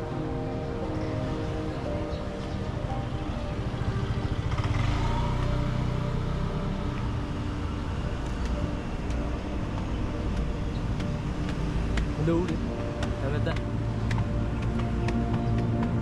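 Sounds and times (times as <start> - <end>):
motor scooter engine passing: 1.3 - 9.0.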